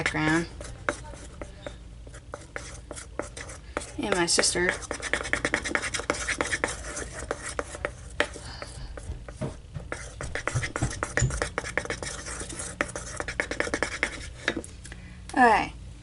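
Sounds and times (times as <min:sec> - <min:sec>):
stick scraping bowl: 0:00.0 - 0:14.7.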